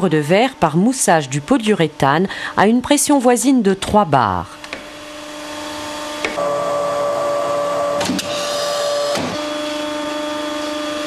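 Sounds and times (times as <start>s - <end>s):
machine electric whine: 4.6s - 11.0s.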